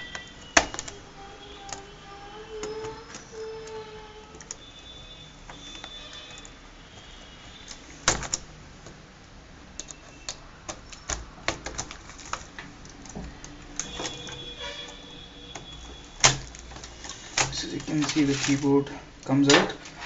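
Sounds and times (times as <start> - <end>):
plastic clicks and snaps: 0.0 - 1.9.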